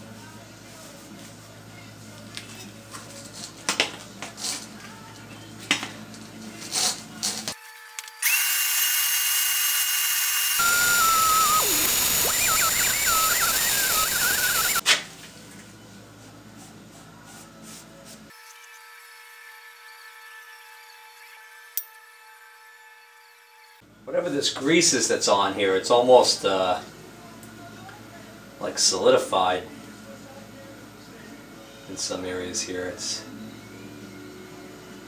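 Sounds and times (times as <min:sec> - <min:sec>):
shop vacuum running: 0:08.2 - 0:14.8
air sucking whistle: 0:10.6 - 0:14.8.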